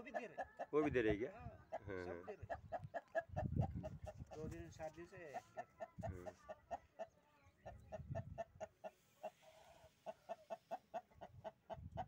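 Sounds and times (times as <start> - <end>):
hens clucking softly: 0.0 - 4.6, 5.2 - 12.0.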